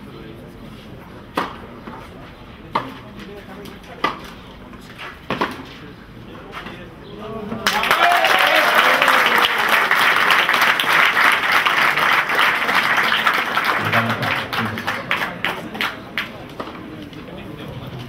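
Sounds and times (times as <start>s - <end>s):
crowd applauding: 7.6s - 16.3s.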